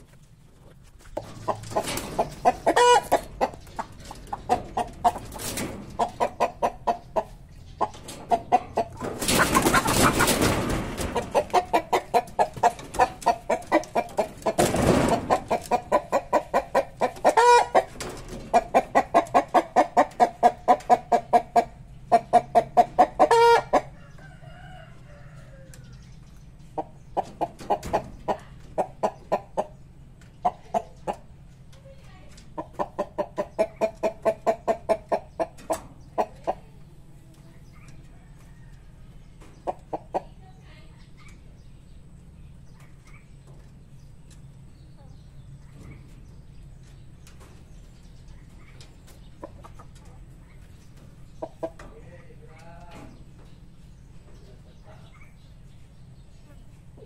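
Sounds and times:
chickens clucking: 0:00.0 - 0:57.0.

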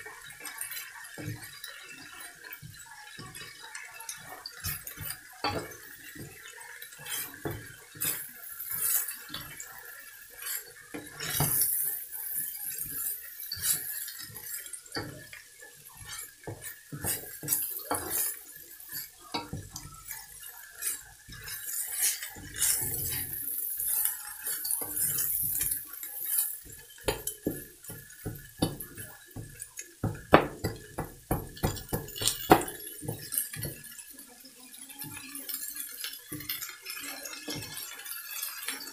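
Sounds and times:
spatula scraping a wok: 0:04.4 - 0:34.0.

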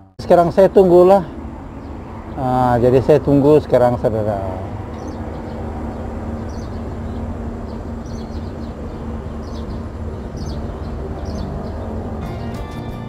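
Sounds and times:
high bird chirps: 0:04.9 - 0:13.0.

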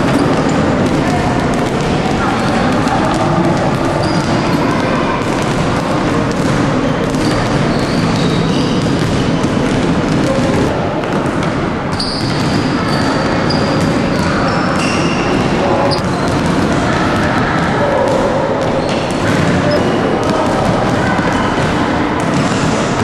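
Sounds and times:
basketballs bouncing on wooden floor: 0:00.0 - 0:23.0.

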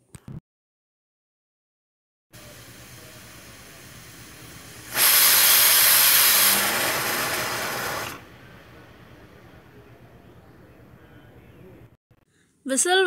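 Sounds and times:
pressure cooker whistle hissing: 0:02.4 - 0:08.2.

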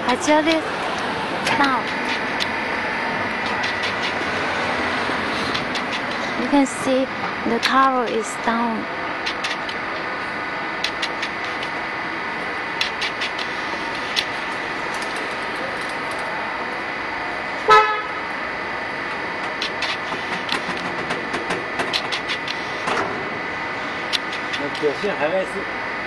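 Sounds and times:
mixer humming with high whine: 0:00.0 - 0:26.0
vehicle horn toot: 0:17.7 - 0:18.2.

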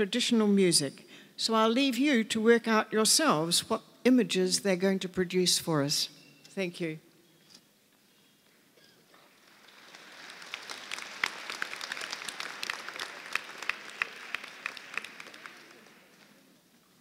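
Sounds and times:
audience applauding: 0:09.2 - 0:16.6.

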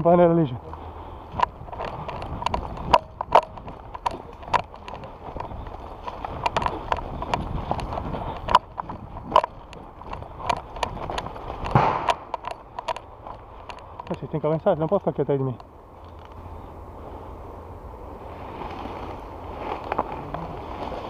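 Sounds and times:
steady outdoor noise: 0:00.0 - 0:21.0
footsteps on forest floor: 0:00.6 - 0:16.4, 0:18.4 - 0:21.0
gear knocking and clicking: 0:01.3 - 0:16.3.

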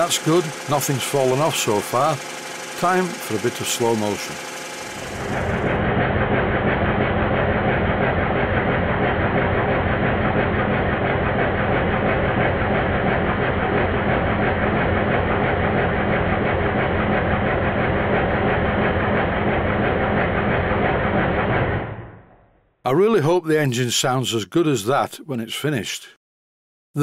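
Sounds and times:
model steam engine clattering: 0:00.0 - 0:05.3.

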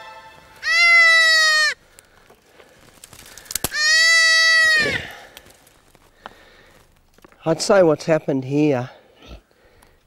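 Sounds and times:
goat kid bleating: 0:00.6 - 0:01.8, 0:03.7 - 0:05.2.

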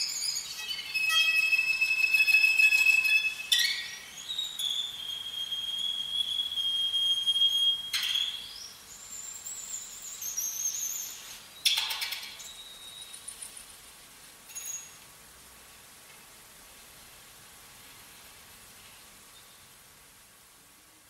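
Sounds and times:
violin high harmonics: 0:00.0 - 0:08.4.

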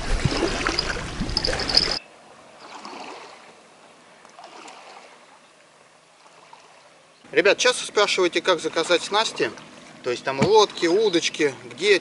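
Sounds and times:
rushing trickling water: 0:00.0 - 0:12.0.

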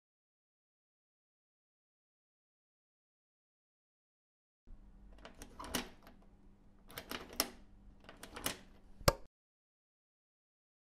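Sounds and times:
mechanical clicks and rattles: 0:05.2 - 0:06.2, 0:06.9 - 0:09.2
sharp click: 0:08.4 - 0:09.3.

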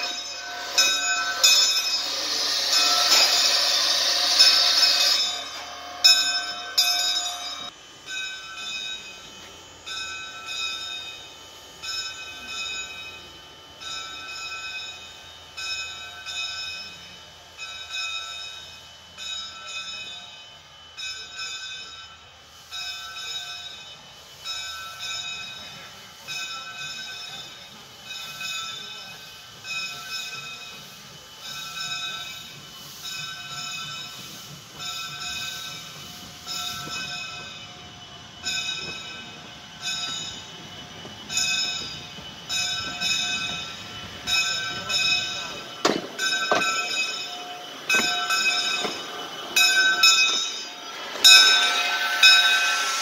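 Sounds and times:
locomotive bell ringing: 0:00.0 - 0:53.0
steam locomotive hissing steam: 0:00.0 - 0:53.0.

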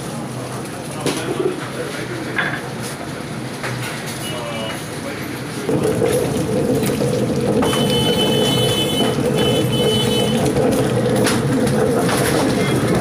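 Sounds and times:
wet grinder humming: 0:05.4 - 0:13.0.

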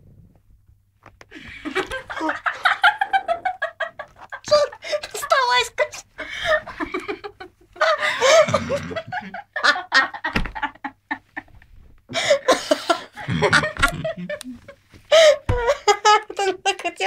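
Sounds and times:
people laughing: 0:01.3 - 0:11.5, 0:12.1 - 0:16.3.

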